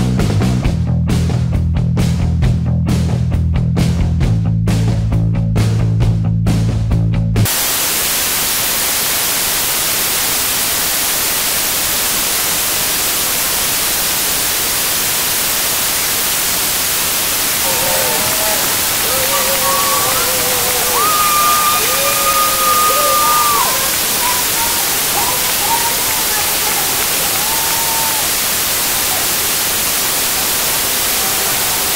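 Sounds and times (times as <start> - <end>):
loud even hiss: 7.5 - 31.9
faint cheers: 17.6 - 31.9.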